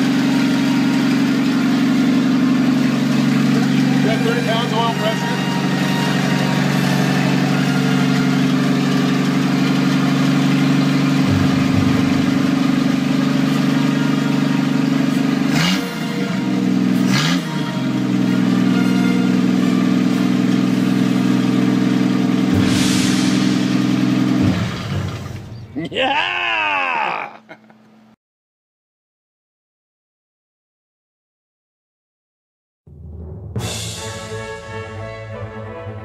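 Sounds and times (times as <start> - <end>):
engine running steady: 0.0 - 25.8.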